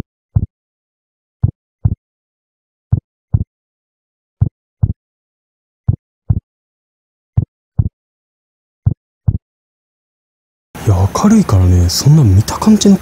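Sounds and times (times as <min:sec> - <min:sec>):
heartbeat thuds: 0:01.4 - 0:02.0, 0:02.9 - 0:03.5, 0:04.4 - 0:05.0, 0:05.9 - 0:06.5, 0:07.4 - 0:08.0, 0:08.8 - 0:09.4.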